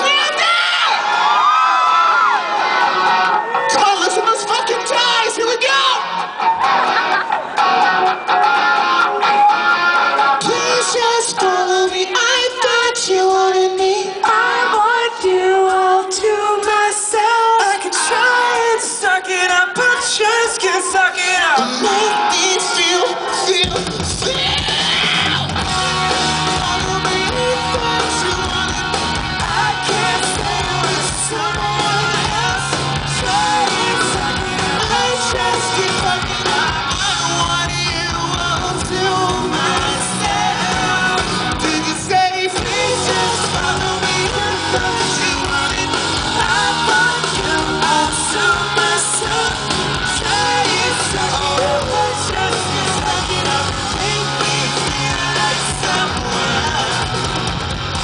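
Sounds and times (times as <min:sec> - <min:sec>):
live rock band playing: 0:00.0 - 0:58.0
man singing: 0:10.2 - 0:57.5.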